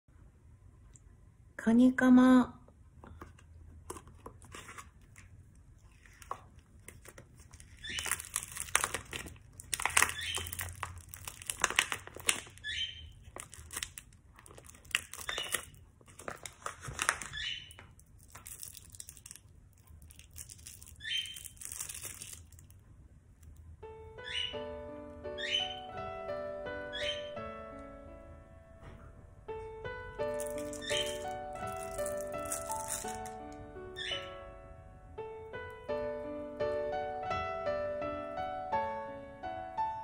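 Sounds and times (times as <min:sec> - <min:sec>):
plastic wrapper crinkling: 0:03.7 - 0:23.6, 0:30.3 - 0:33.6.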